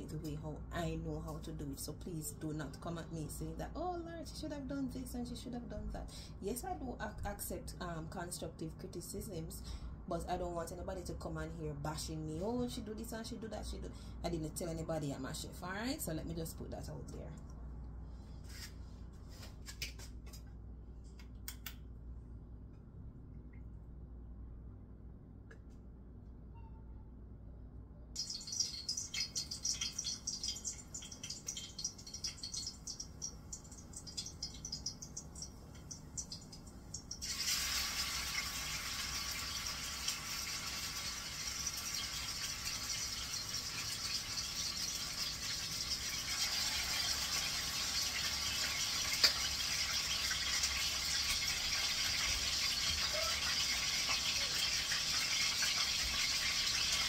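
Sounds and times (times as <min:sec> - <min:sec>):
hot oil crackling and popping: 0:28.2 - 0:57.0
meat sizzling in oil: 0:28.2 - 0:57.0.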